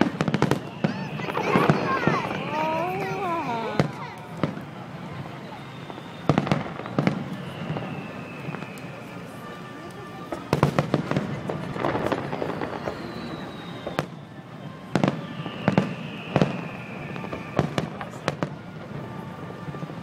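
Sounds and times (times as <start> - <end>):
fireworks bursting: 0.0 - 20.0.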